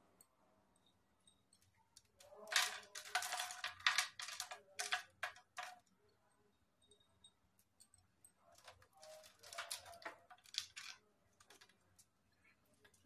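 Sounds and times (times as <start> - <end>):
chopped nuts pattering into metal tray: 2.2 - 5.8, 8.6 - 11.6.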